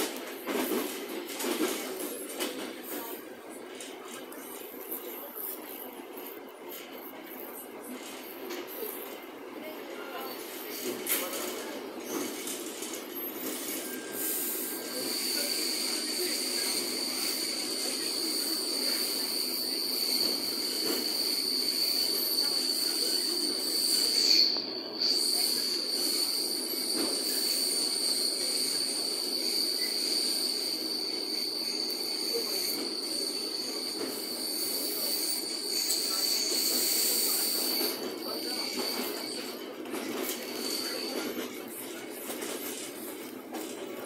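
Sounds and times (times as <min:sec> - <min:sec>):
train wheels rumbling on rail: 0:00.0 - 0:44.0
high steady squeal: 0:13.4 - 0:39.6.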